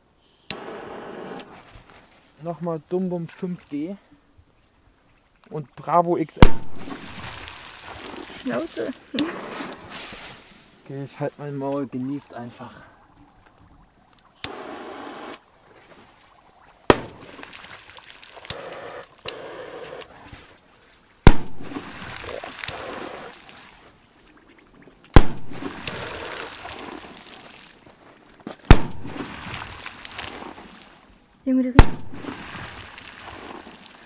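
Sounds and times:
water spraying and splashing: 6.3s - 12.4s, 13.2s - 31.1s, 31.8s - 34.0s
firecrackers exploding: 6.4s - 7.6s, 16.9s - 17.5s, 21.2s - 22.2s, 25.2s - 25.9s, 28.7s - 30.1s, 31.8s - 33.0s
fuse hissing: 14.4s - 15.4s, 18.5s - 20.2s.

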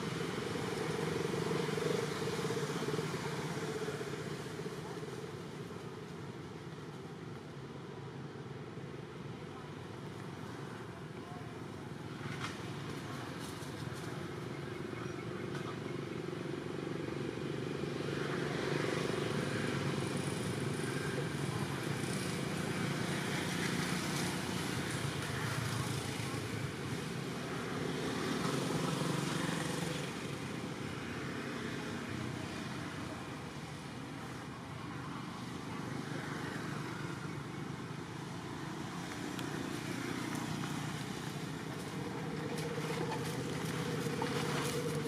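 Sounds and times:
motor traffic: 0.0s - 45.0s.

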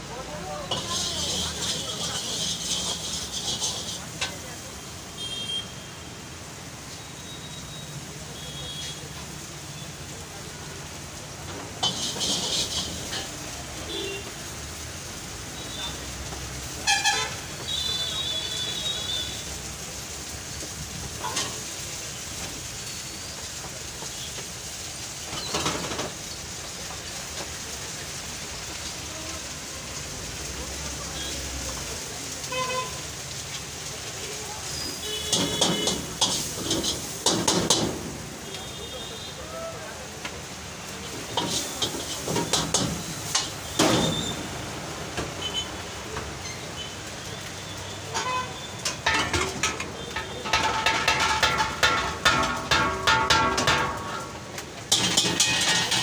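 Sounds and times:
gas burner hiss: 0.0s - 5.6s, 6.2s - 56.0s
food sizzling in a wok: 0.0s - 56.0s
spatula scraping a wok: 0.6s - 4.5s, 11.8s - 13.4s, 34.8s - 37.8s, 41.1s - 44.3s, 48.0s - 56.0s.

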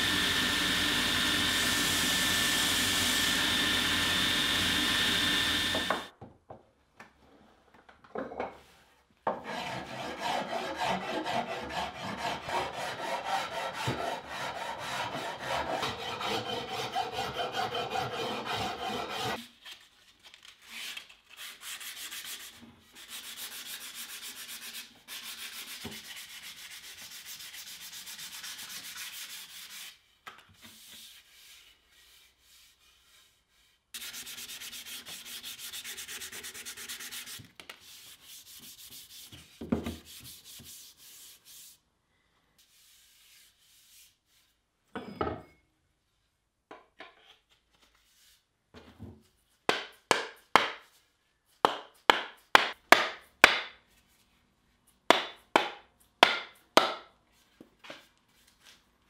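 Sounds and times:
sandpaper rubbing wood: 9.5s - 19.4s, 21.4s - 30.1s, 30.7s - 41.8s.

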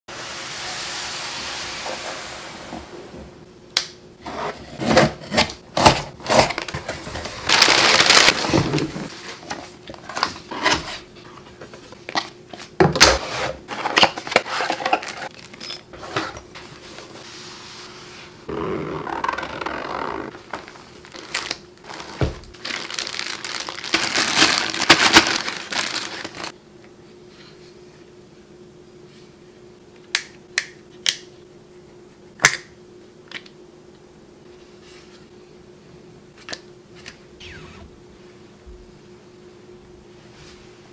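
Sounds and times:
cardboard and paper rustling: 4.3s - 12.0s, 13.7s - 17.2s, 20.3s - 26.5s
packing tape being slit: 18.5s - 26.5s.

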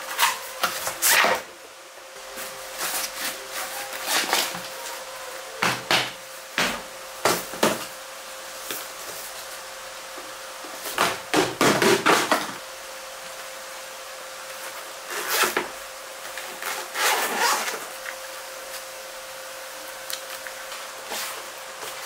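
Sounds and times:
faint steady hum: 0.0s - 22.0s
cardboard boxes rustling and sliding: 2.3s - 5.0s.

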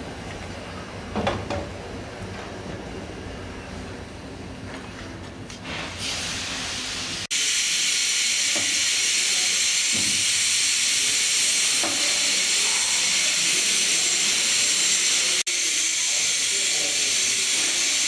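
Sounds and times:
steam hissing from locomotive: 5.7s - 18.0s.

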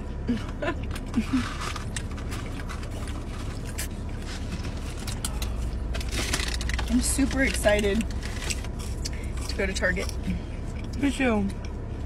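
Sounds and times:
food wrapping rustling: 1.0s - 10.2s.

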